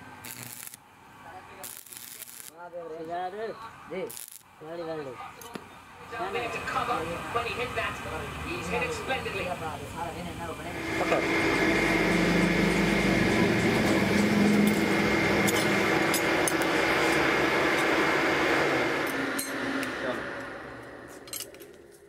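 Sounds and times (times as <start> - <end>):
forge blower humming whine: 10.6 - 22.0.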